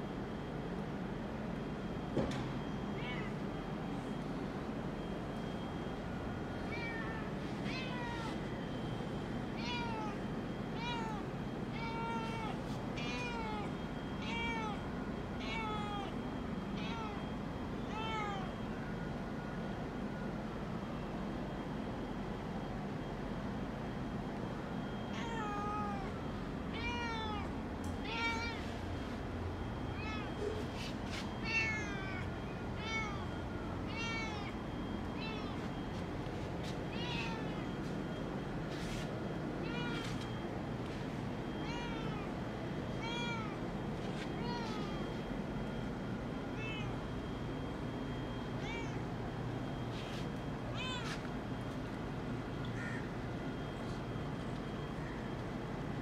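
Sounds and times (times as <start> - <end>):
cat meowing: 3.0 - 3.4, 6.7 - 8.4, 9.5 - 10.2, 10.8 - 14.8, 15.4 - 16.2, 16.8 - 17.2, 17.8 - 18.6, 25.1 - 28.7, 30.0 - 30.6, 31.4 - 33.3, 33.9 - 34.6, 35.2 - 35.7, 36.9 - 37.8, 39.6 - 40.3, 41.6 - 42.4, 43.0 - 43.6, 44.3 - 45.0, 46.6 - 47.0, 48.6 - 49.0, 50.7 - 51.2.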